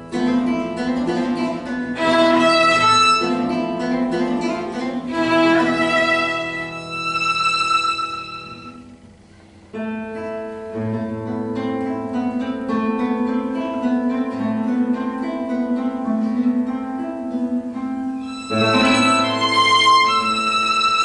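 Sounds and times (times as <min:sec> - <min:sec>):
acoustic guitar plucked notes: 0:00.0 - 0:21.0
violin bowed note: 0:02.0 - 0:03.8, 0:05.0 - 0:09.0, 0:18.2 - 0:21.0.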